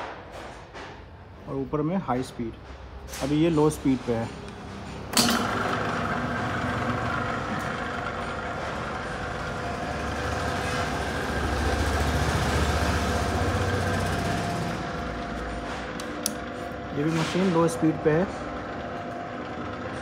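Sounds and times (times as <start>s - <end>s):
food mixer motor humming and whining: 5.2s - 16.9s.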